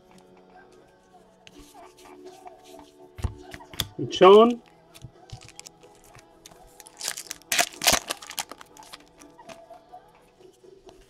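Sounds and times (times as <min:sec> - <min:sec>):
cards rustling and sliding: 0:05.0 - 0:09.4.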